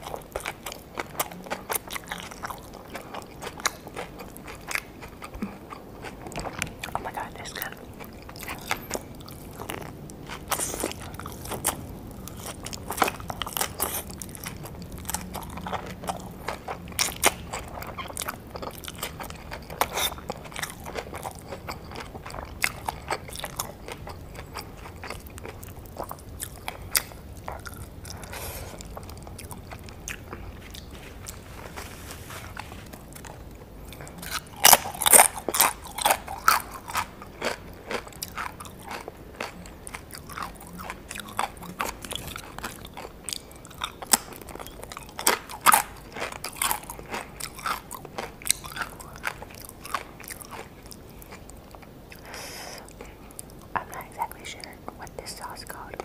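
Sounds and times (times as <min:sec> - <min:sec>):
crunching fried tacos: 0:00.0 - 0:55.6.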